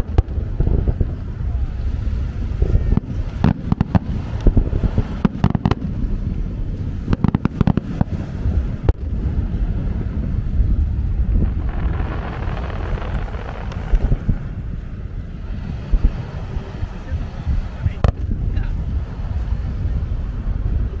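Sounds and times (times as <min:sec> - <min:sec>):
low rumble: 0:00.0 - 0:16.7
fireworks bangs and crackles: 0:00.0 - 0:18.4.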